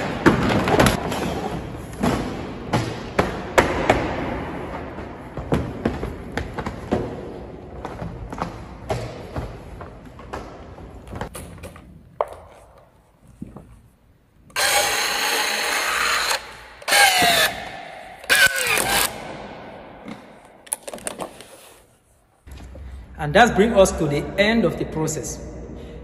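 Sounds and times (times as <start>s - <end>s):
strapping tool motor running: 14.6s - 17.6s.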